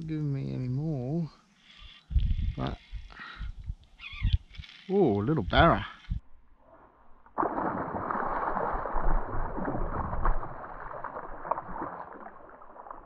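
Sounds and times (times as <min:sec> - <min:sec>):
fish splashing in water: 0:07.4 - 0:13.0.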